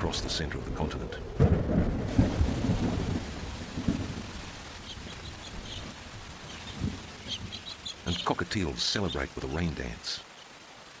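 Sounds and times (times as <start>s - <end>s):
thunder rumbling: 0.0s - 9.3s
heavy rain hissing: 0.0s - 11.0s
faint bird chirps: 4.8s - 8.4s.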